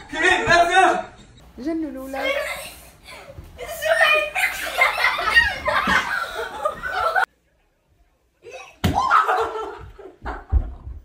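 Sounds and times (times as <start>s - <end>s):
children shouting and laughing: 2.2s - 7.3s, 8.4s - 10.8s.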